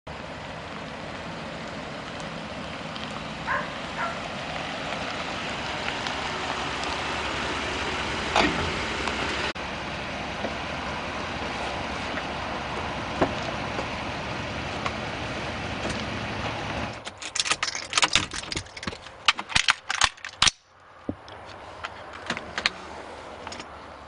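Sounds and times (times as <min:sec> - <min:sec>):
pickup truck driving: 0:00.1 - 0:19.3.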